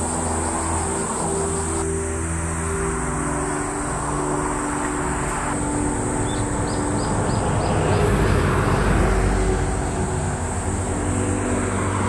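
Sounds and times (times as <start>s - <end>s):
background music held notes: 0.0s - 12.0s
steady high hiss: 0.0s - 12.0s
motor vehicle passing: 2.8s - 12.0s.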